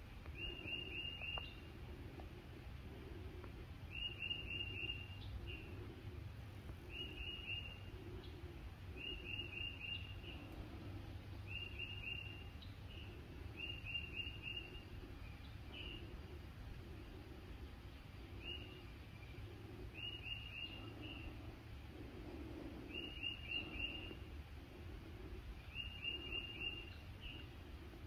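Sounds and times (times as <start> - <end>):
songbird singing: 0.0 - 28.0
steady low rumble: 0.0 - 28.0.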